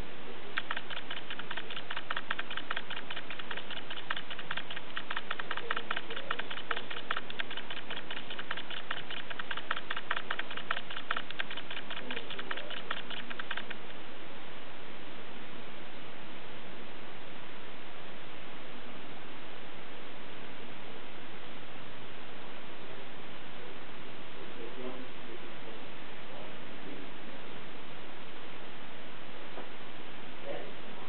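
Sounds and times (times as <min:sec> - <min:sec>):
rapid light clicking: 0:00.5 - 0:14.0.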